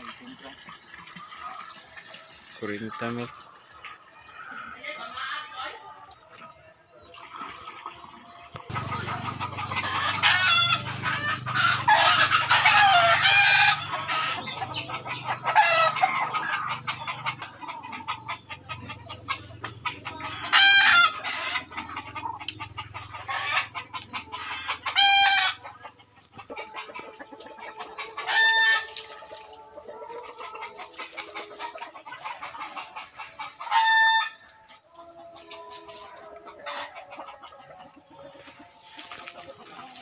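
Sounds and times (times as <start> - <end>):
roosters clucking: 0.0 - 40.0
roosters crowing: 8.7 - 25.8, 26.6 - 29.7, 32.8 - 34.6.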